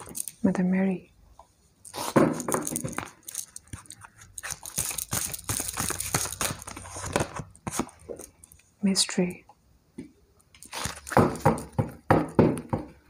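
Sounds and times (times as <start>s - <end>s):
cards being shuffled: 1.9s - 8.7s, 10.6s - 11.7s.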